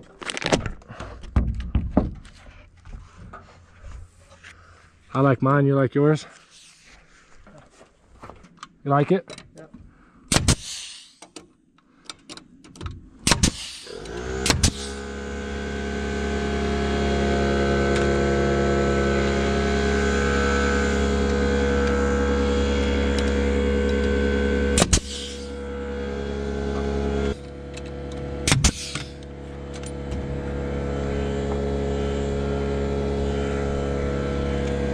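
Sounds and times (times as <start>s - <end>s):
nail gun firing: 10.3s - 11.3s, 13.2s - 15.1s, 24.8s - 25.6s, 28.4s - 29.2s
air compressor motor humming: 13.3s - 34.9s.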